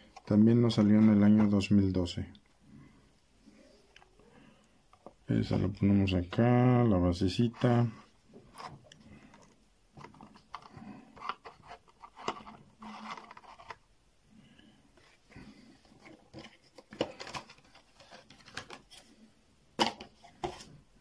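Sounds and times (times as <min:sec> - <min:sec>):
plastic case clicks and scrapes: 0:08.5 - 0:13.8.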